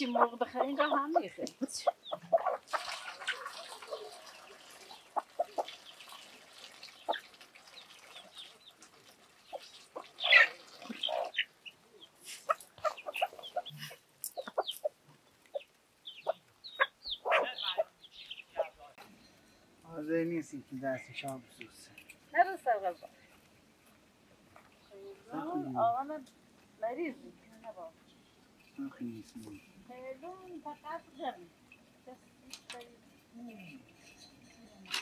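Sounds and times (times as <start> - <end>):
chickens clucking: 0.0 - 19.2.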